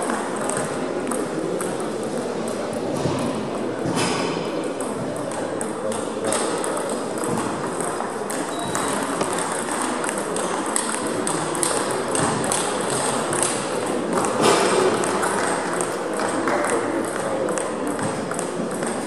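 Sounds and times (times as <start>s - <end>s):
steady background noise: 0.0s - 19.0s
table tennis balls clicking: 4.6s - 19.0s.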